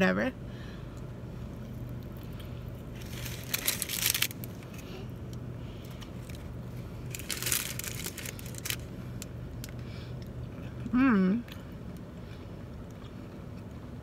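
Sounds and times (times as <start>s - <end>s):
crunching pretzel crust: 1.6s - 10.8s
paper wrapper crinkling: 2.9s - 4.8s, 6.1s - 8.9s.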